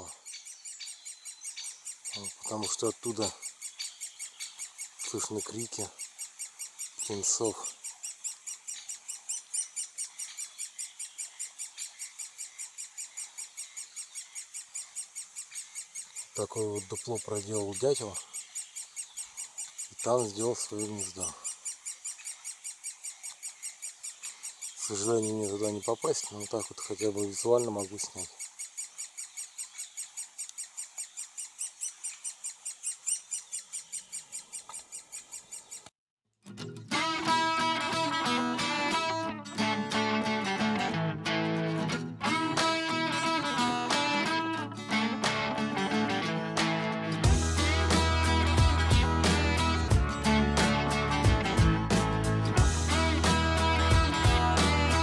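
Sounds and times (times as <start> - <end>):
nestlings begging calls: 0.0 - 35.9.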